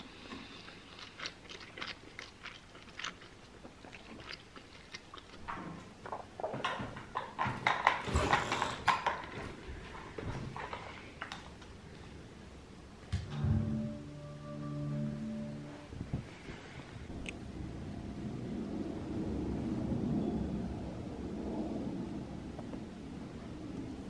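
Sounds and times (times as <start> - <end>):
crunching and chewing fries: 0.0 - 6.6.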